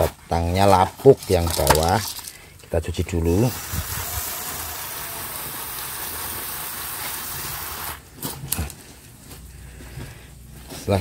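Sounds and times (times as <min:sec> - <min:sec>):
hose nozzle spraying water: 0:03.3 - 0:08.0.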